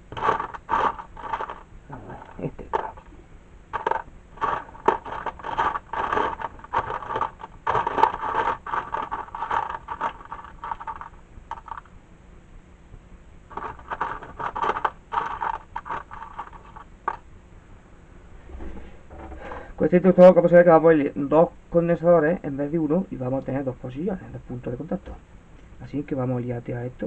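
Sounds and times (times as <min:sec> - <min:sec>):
small hard parts scraping and clattering: 0:00.0 - 0:11.9, 0:13.5 - 0:17.2.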